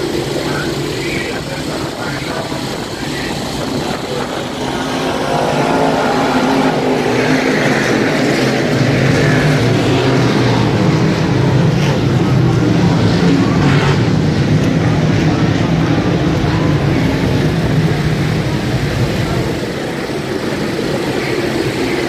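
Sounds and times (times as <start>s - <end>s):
race car engines running: 0.0s - 22.0s.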